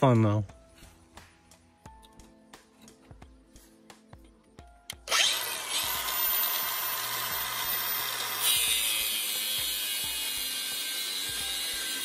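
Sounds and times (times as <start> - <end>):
angle grinder cutting steel: 5.0 - 12.0
angle grinder spinning up: 5.0 - 12.0.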